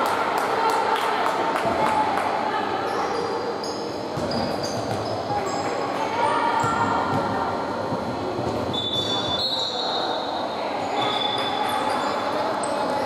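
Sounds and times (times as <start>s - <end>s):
din of voices in hall: 0.0s - 13.0s
sneakers squeaking on hardwood: 3.6s - 5.7s.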